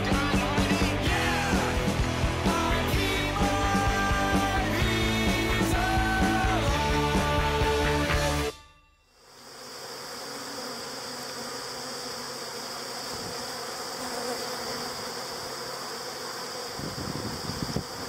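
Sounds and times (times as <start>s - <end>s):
bees buzzing: 9.2s - 18.0s.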